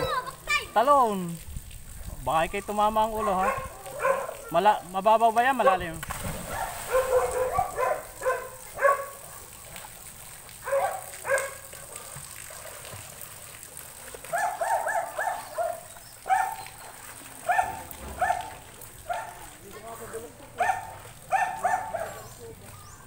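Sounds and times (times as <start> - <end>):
dog barking in high yaps: 3.2 - 4.6, 6.5 - 9.3, 10.6 - 11.7, 14.3 - 16.8, 17.5 - 19.4, 20.6 - 22.3.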